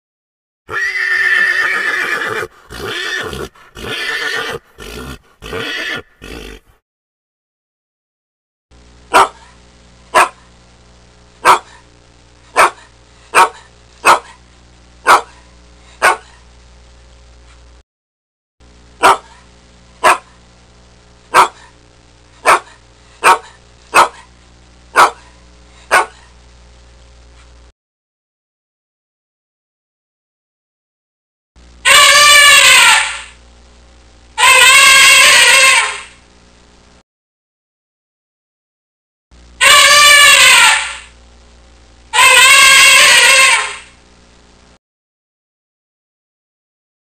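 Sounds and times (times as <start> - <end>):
horse whinnying: 0.7 - 6.8, 34.4 - 36.1, 42.2 - 43.9
dog barking: 9.1 - 10.5, 11.4 - 11.8, 12.5 - 14.4, 15.0 - 16.4, 19.0 - 19.4, 20.0 - 20.4, 21.3 - 21.8, 22.4 - 24.3, 24.9 - 25.3, 25.9 - 26.3.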